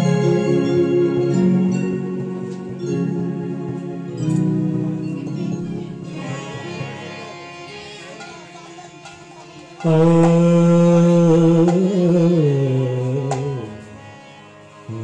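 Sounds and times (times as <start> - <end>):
man singing long held note: 9.8 - 14.1.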